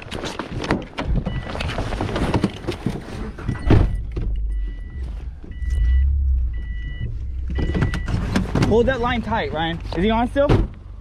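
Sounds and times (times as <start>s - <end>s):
rustling and handling noise: 0.0s - 5.9s
car engine rumbling: 1.2s - 11.0s
car warning chime beeping: 3.5s - 8.4s
loud thump: 3.6s - 8.9s.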